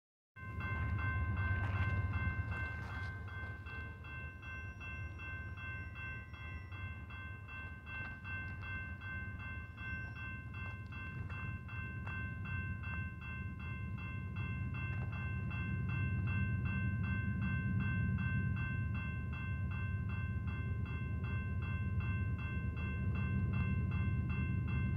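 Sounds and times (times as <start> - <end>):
railroad crossing bell ringing: 0.4 - 24.9.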